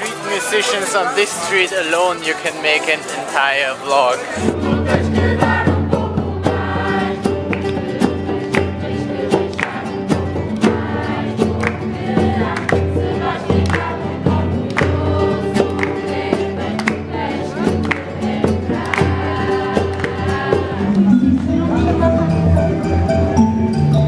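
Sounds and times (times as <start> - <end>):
strummed acoustic guitars: 0.0 - 24.0
group singing in chorus: 4.1 - 22.1.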